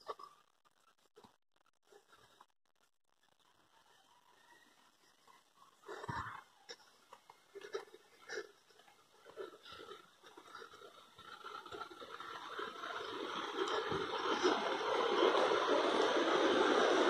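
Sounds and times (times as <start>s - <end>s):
steady noise: 5.3s - 17.0s.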